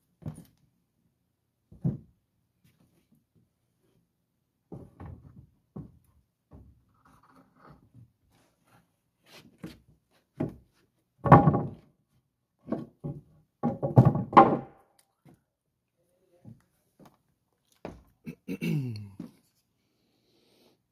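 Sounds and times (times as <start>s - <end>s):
wooden boards knocking and thudding: 1.7s - 2.1s, 11.2s - 11.9s, 12.6s - 14.8s
boards clattering: 11.2s - 11.8s, 12.6s - 14.8s.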